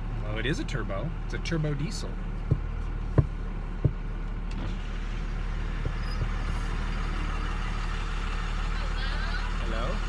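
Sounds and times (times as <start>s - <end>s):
diesel engine drone: 0.0s - 10.0s
short knocks: 2.4s - 4.8s.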